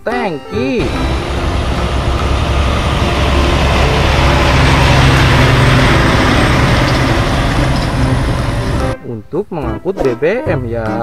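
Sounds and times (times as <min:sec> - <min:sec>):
truck engine hum: 0:00.5 - 0:09.0.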